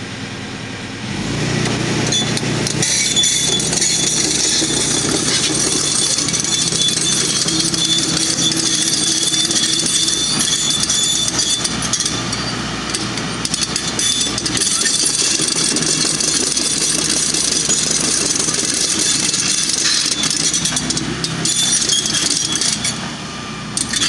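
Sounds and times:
machinery engine hum: 0.0 - 24.0.

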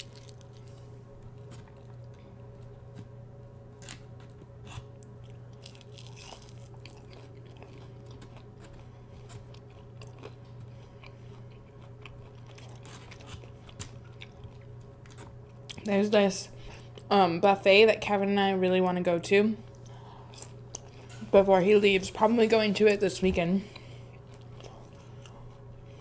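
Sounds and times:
chewing crunchy food: 0.0 - 3.2, 3.8 - 15.9, 19.7 - 21.4, 23.7 - 26.0
steady low hum: 0.0 - 26.0.

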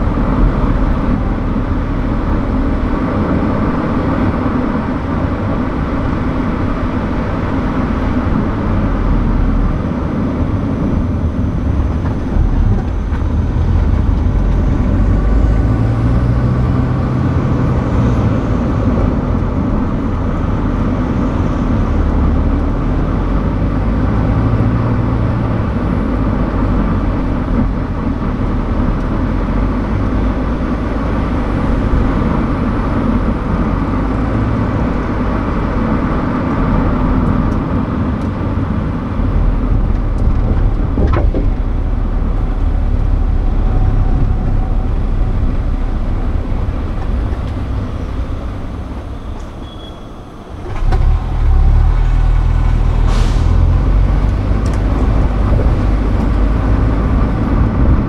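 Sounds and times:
car engine and tyre rumble: 0.0 - 58.0.

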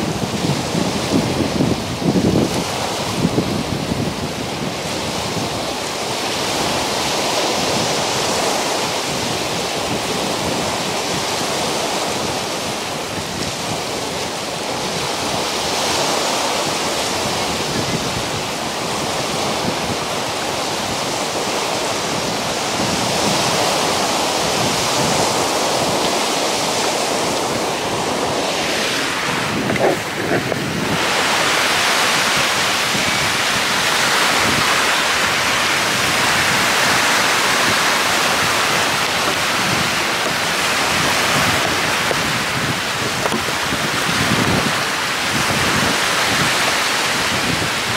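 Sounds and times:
lake waves breaking on rocks: 0.0 - 47.9
wind buffeting microphone: 0.0 - 47.9.

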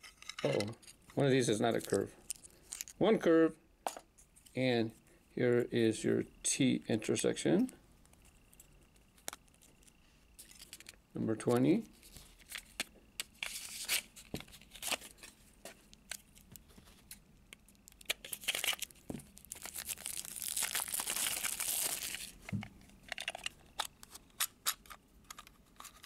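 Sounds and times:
packaging crinkling and tearing: 12.0 - 15.4, 16.0 - 26.0.

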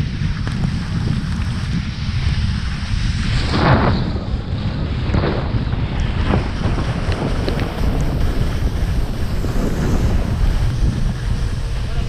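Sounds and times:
wind buffeting microphone: 0.0 - 12.0
ski edges scraping snow: 6.0 - 11.9.

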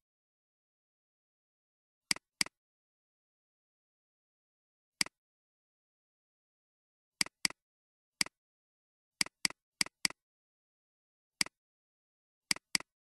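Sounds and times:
computer mouse clicks: 9.2 - 10.2, 11.4 - 11.6, 12.5 - 12.9.

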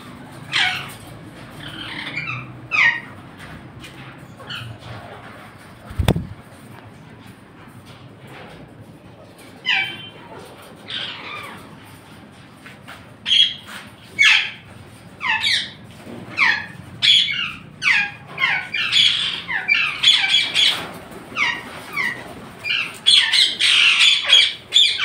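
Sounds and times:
parakeets squawking: 0.3 - 3.6, 9.6 - 11.9, 13.2 - 25.0.

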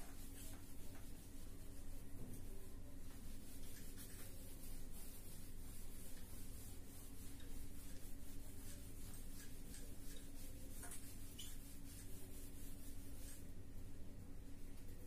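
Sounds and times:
eraser wiping whiteboard: 0.0 - 13.5.

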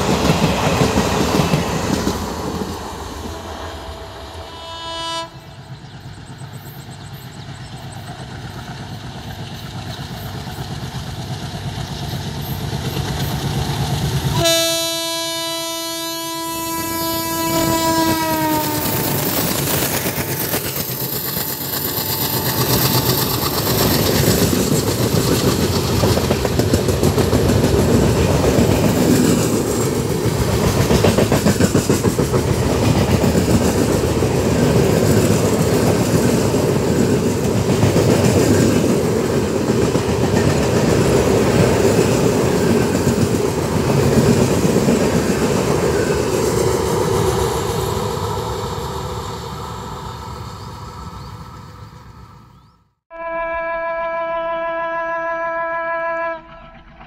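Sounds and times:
train wheels clattering over rail joints: 5.7 - 14.4, 18.7 - 48.2.

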